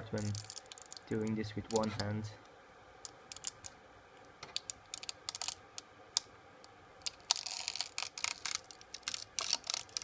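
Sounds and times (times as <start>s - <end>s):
plastic clicking and crackling: 3.0s - 3.8s, 4.4s - 6.3s, 7.0s - 10.0s.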